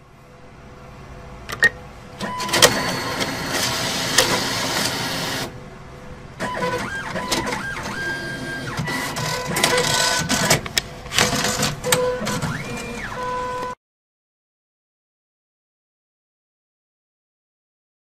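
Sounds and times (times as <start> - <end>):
cash dispenser whirring and rattling: 2.2 - 5.6, 6.4 - 13.2.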